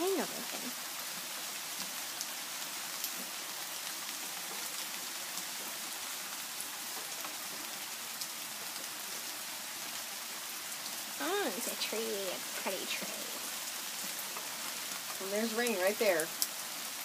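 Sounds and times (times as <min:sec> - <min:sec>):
raindrops ticking: 0:00.0 - 0:17.0
steady rain hiss: 0:00.0 - 0:17.0.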